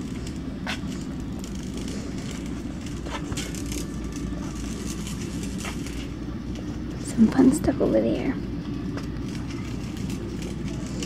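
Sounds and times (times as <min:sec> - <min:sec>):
wire basket rattling: 0:00.0 - 0:06.4, 0:09.0 - 0:11.0
shopping cart wheels rumbling: 0:00.0 - 0:11.0.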